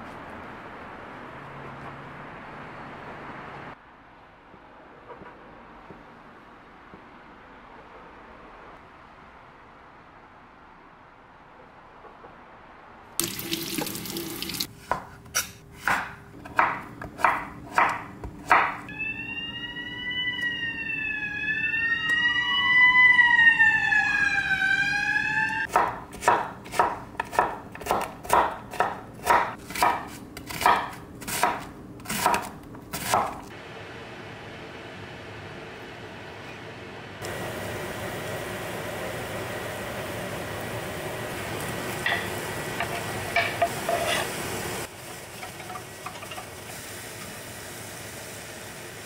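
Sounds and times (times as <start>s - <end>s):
knife chopping on wooden board: 14.8s - 18.8s, 25.7s - 33.5s
siren wailing: 18.9s - 25.7s.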